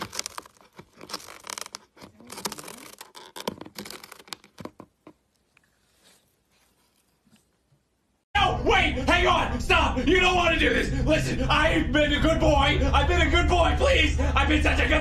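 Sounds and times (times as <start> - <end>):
cat scratching cardboard box: 0.0 - 5.1.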